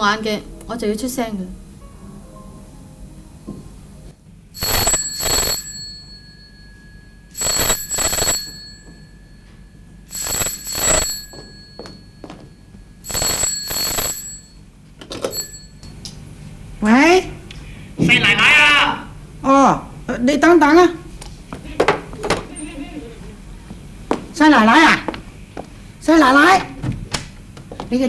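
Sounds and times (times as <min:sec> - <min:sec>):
telephone bell ringing: 0:04.6 - 0:16.0.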